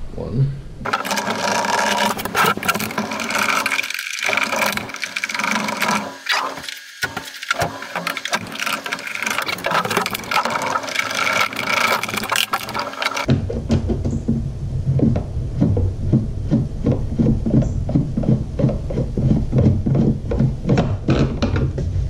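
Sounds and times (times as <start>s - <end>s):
screwdriver turning screws in plastic: 0.9s - 13.3s
plastic housing scraping and knocking: 0.9s - 14.2s.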